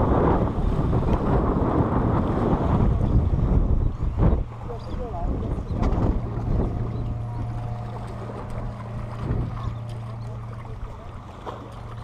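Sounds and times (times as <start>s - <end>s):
steady low drone: 0.0s - 12.0s
wind rumble on microphone: 0.0s - 12.0s.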